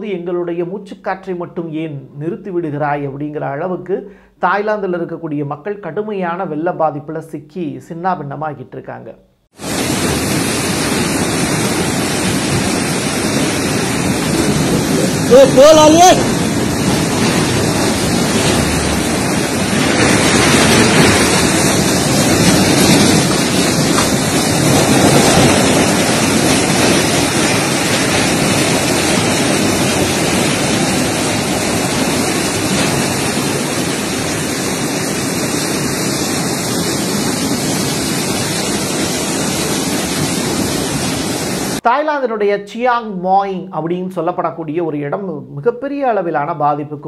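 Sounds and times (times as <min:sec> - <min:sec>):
floodwater roaring: 0:09.6 - 0:41.8.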